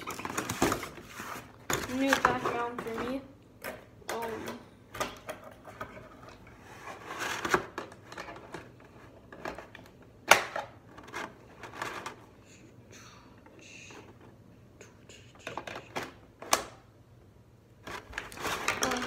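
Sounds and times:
sharp plastic snap: 10.3s - 10.7s
stiff plastic crackling: 17.8s - 19.0s.

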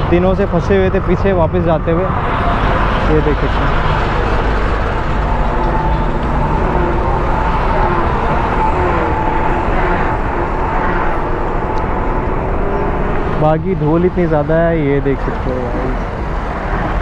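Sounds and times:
faint engine hum: 0.0s - 17.0s
vehicle road rumble: 0.0s - 17.0s.

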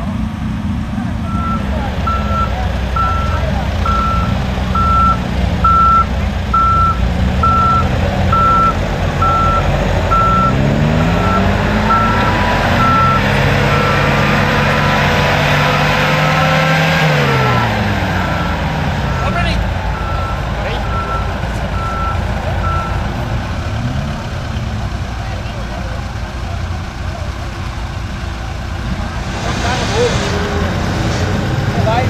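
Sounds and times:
engine revving under load: 0.0s - 27.0s, 27.6s - 32.0s
reversing alarm beeping: 1.3s - 14.9s, 17.3s - 23.8s.

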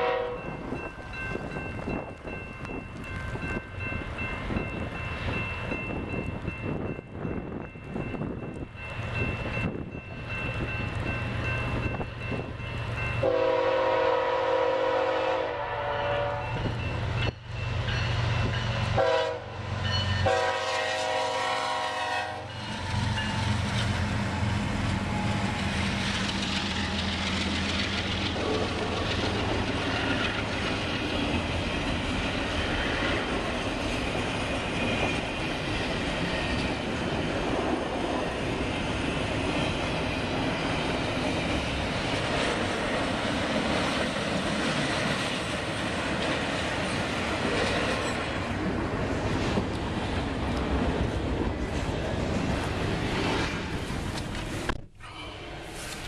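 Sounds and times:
train horn: 0.0s - 0.6s, 13.2s - 16.8s, 18.9s - 23.5s
locomotive engines rumbling: 0.0s - 56.0s
wheels clattering on rail: 22.5s - 54.8s.

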